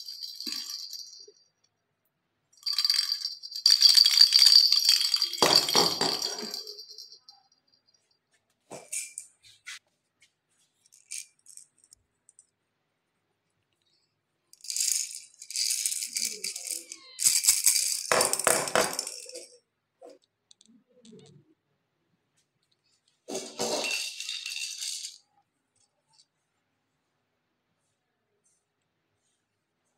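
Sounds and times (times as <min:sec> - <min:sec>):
baby rattle shaking: 0:00.0 - 0:01.3, 0:02.6 - 0:07.3, 0:08.8 - 0:09.3, 0:10.8 - 0:12.0, 0:14.6 - 0:20.3, 0:23.3 - 0:25.3.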